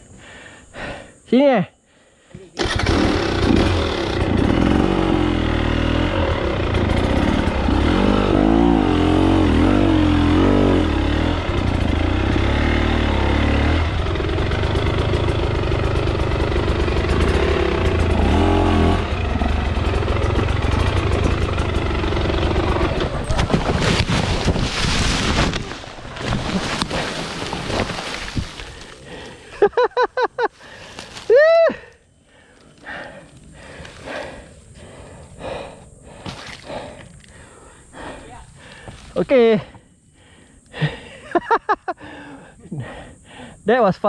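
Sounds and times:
dirt bike engine revving: 2.6s - 29.9s.

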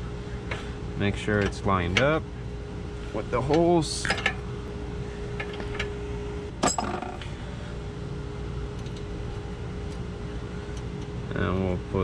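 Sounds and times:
steady hum: 0.0s - 12.0s
tool clinking on nut: 6.6s - 7.2s.

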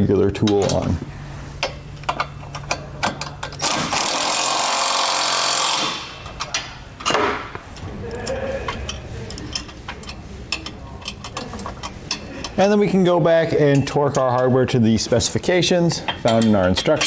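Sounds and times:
impact driver hammering: 3.6s - 6.2s
hand tools clinking on bolts: 16.0s - 17.0s.

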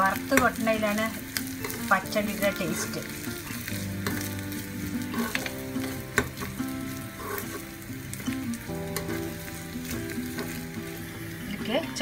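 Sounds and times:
food sizzling in oil: 0.0s - 12.0s
metal spoon scraping pan: 1.6s - 2.0s, 2.9s - 4.4s, 5.0s - 7.7s.

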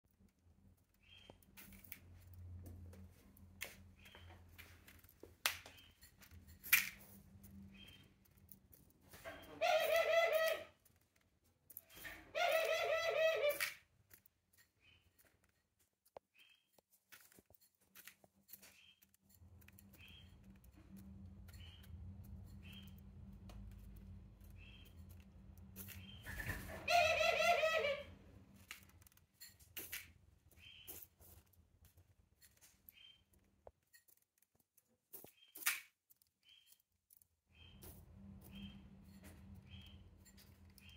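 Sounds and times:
dove pecking at seed: 0.2s - 40.9s
dove rolling call: 9.5s - 10.8s, 12.3s - 13.8s, 26.7s - 28.2s.

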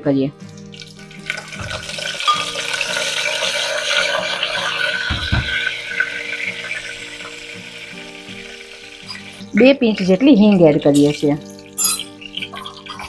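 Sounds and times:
spices sizzling in hot oil: 0.4s - 13.0s
low knock: 5.1s - 5.6s.

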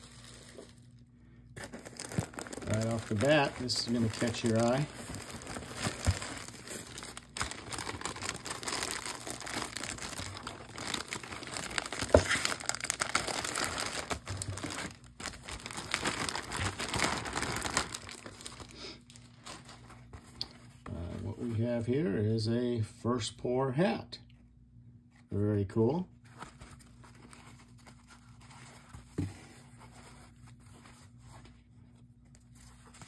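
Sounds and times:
plastic bag crinkling: 0.0s - 1.0s, 1.6s - 20.2s
sharp plastic crackle: 1.6s - 19.8s.

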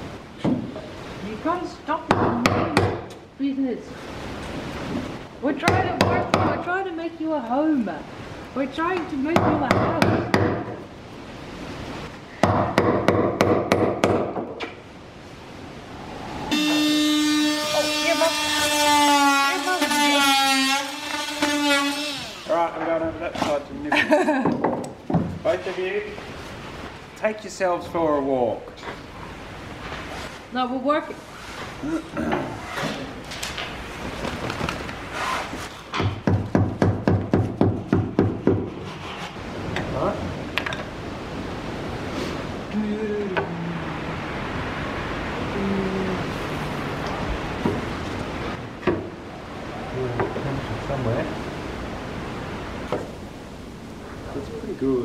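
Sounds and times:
hammer blows: 16.2s - 22.2s.

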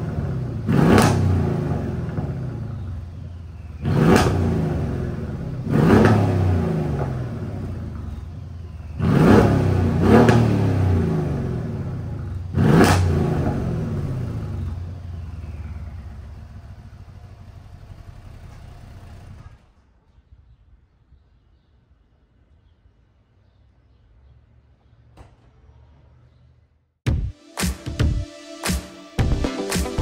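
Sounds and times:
car engine revving: 0.0s - 19.8s
car engine idling: 0.0s - 20.0s.

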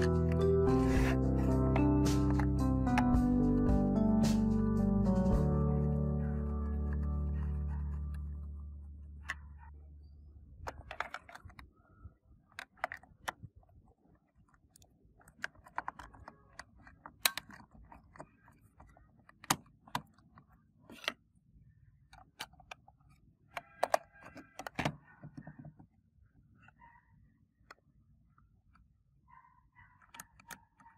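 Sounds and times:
plastic clicks and knocks: 10.6s - 11.7s, 12.5s - 13.5s, 14.5s - 21.2s, 22.1s - 25.9s.

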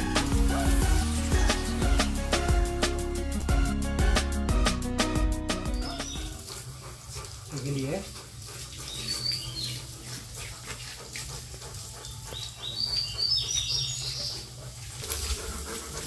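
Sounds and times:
wet dog being rubbed: 0.0s - 3.0s, 5.8s - 16.0s
faint dog sounds: 6.2s - 16.0s.

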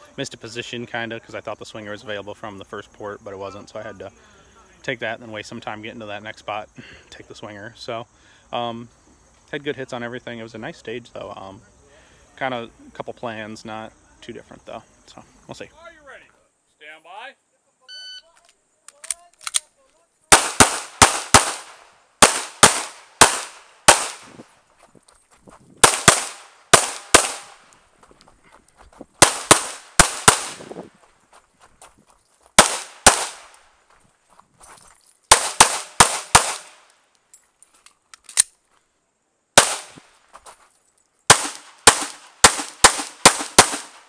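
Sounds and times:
pistol shots: 20.3s - 24.4s, 25.8s - 27.6s, 29.2s - 30.7s, 32.6s - 33.6s, 35.3s - 36.9s, 39.6s - 40.0s, 41.3s - 44.0s.

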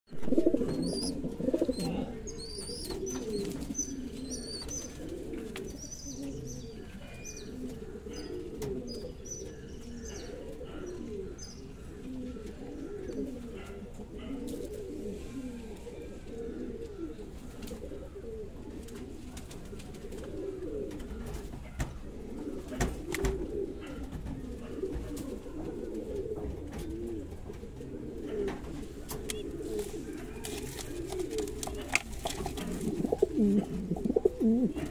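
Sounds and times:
pigeons cooing: 0.1s - 34.9s
small birds chirping: 0.5s - 14.3s, 28.9s - 34.9s.

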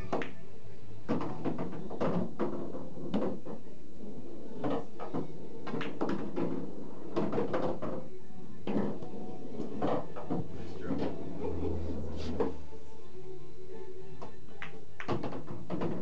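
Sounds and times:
pool balls knocking: 0.0s - 0.4s, 1.0s - 3.7s, 4.4s - 12.6s, 14.6s - 16.0s.

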